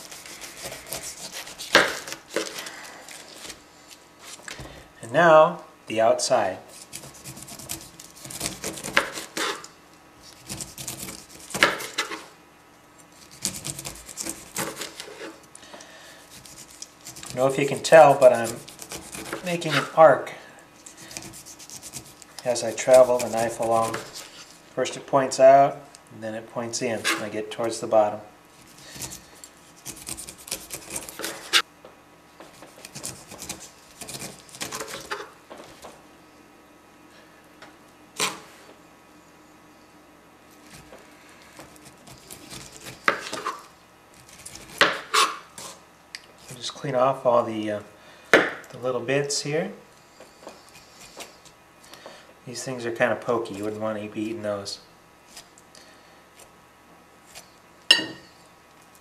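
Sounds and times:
knife rasping through pineapple rind: 0.0 - 3.6, 6.6 - 12.3, 13.0 - 15.5, 16.1 - 20.1, 20.8 - 24.7, 26.9 - 27.8, 28.5 - 31.7, 32.5 - 35.3, 41.5 - 45.8, 50.2 - 51.6.

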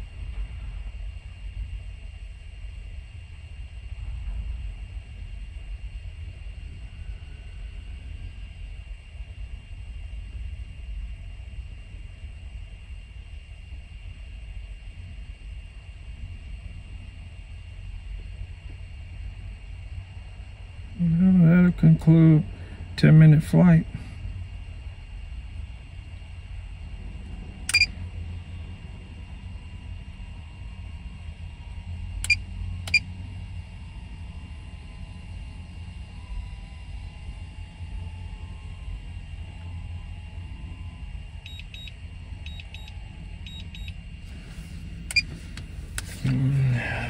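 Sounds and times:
vehicle cabin rumble: 15.8 - 47.0
short electronic beeps: 27.7 - 27.9, 43.5 - 43.9.

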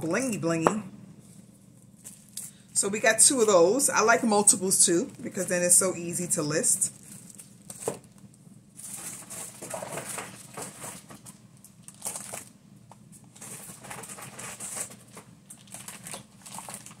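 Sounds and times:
plastic packaging crinkling: 6.8 - 17.0.

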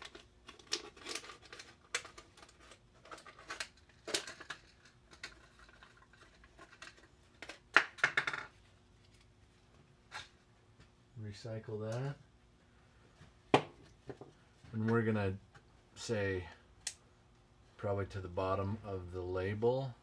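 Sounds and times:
plastic bottle crinkling: 0.0 - 8.2.

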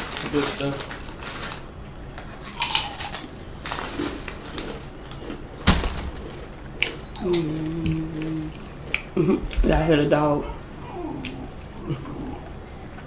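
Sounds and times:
crunchy chewing of fried chicken: 0.0 - 7.1.

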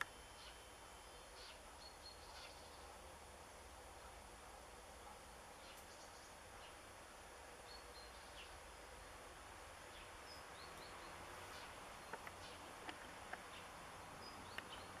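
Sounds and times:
faint bird chirps: 0.0 - 4.2, 5.0 - 6.9, 7.6 - 8.7
small sharp clicks: 12.0 - 13.5.

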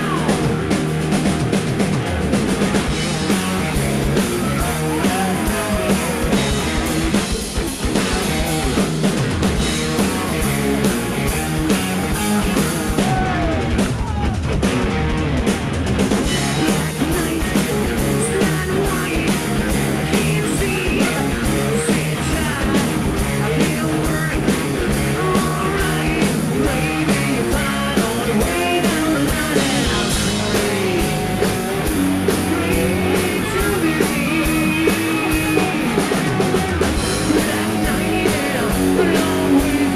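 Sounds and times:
lead singer singing: 0.0 - 0.8, 3.4 - 6.8, 11.7 - 14.3, 16.4 - 39.9
distorted electric guitars: 0.0 - 39.9
drum kit: 0.0 - 39.9.

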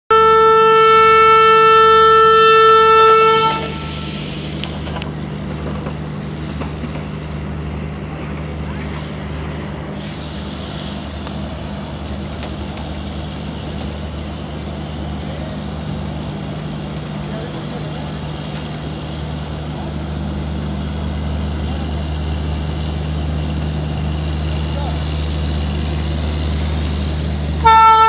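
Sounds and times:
locomotive horn blast: 0.1 - 4.4, 27.6 - 28.0
train low drone: 0.1 - 28.0.

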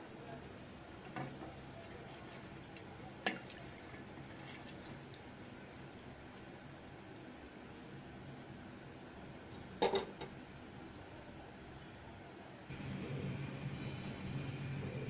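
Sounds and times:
liquid swishing in a pot: 1.8 - 5.8.

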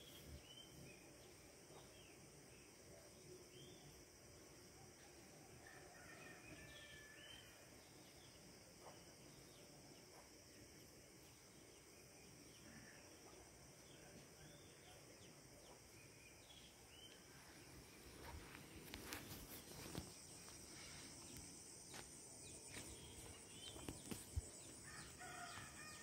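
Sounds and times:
footsteps on dirt road: 18.0 - 25.7.

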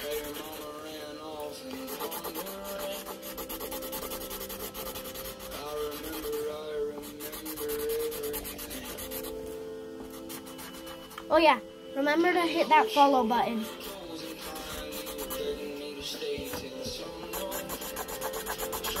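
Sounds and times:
marker scratching on paper: 0.0 - 0.7, 1.9 - 6.4, 10.1 - 11.2, 13.6 - 15.6, 17.2 - 19.0
song from speaker: 0.0 - 3.6, 5.4 - 19.0.

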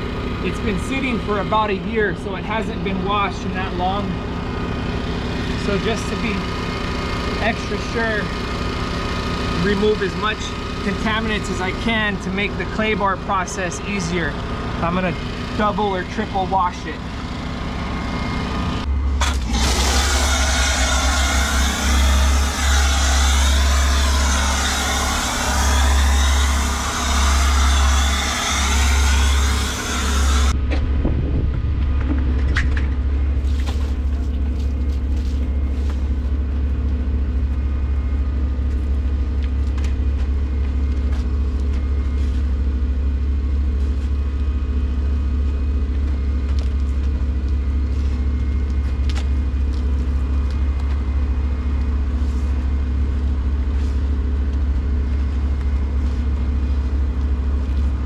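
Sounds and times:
pressure washer motor hum: 0.0 - 30.6.

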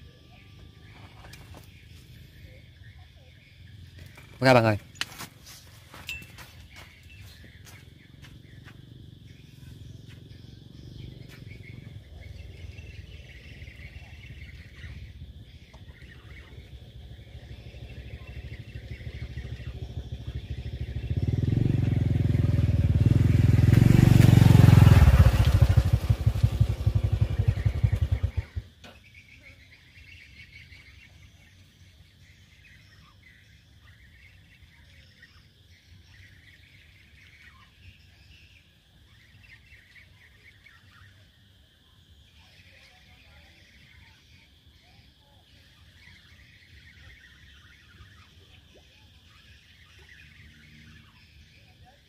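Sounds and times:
small engine running: 16.3 - 28.8.

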